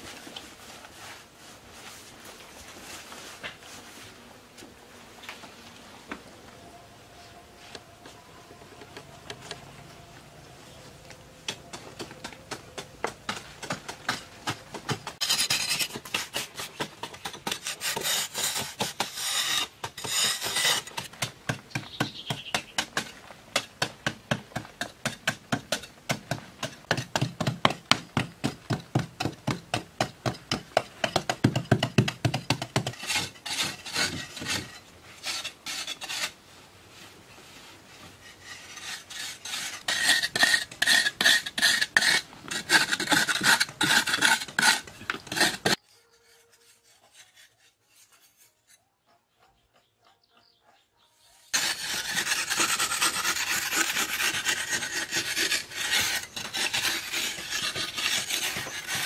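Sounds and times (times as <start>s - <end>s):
metal tool scraping earth wall: 11.5s - 36.4s, 37.9s - 48.9s, 51.5s - 59.0s.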